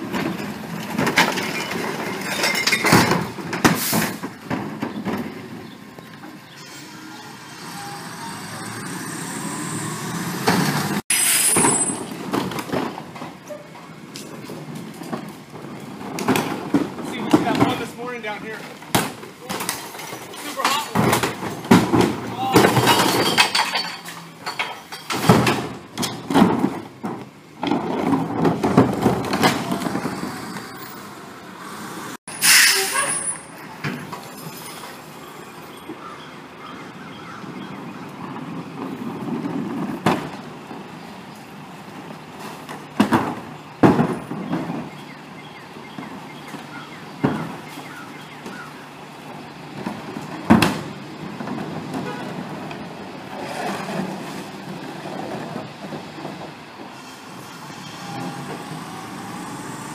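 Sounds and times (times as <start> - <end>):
garbage truck engine running: 0.0 - 36.6, 37.3 - 59.9
air brakes hissing: 11.1 - 12.0, 31.6 - 33.5.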